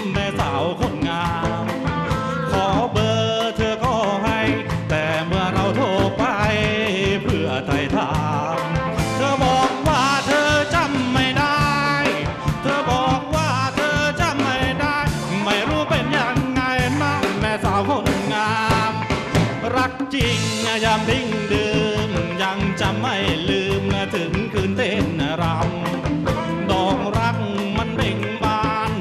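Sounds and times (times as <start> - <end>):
live rock band playing: 0.0 - 29.0.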